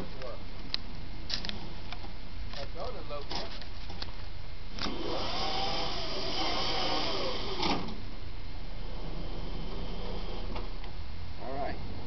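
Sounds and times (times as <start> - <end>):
low hum: 4.3 - 12.0
electric motor whining: 4.8 - 8.0.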